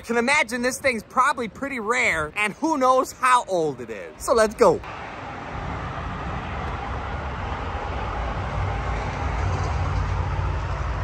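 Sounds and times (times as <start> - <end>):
low outdoor rumble: 4.8 - 11.0.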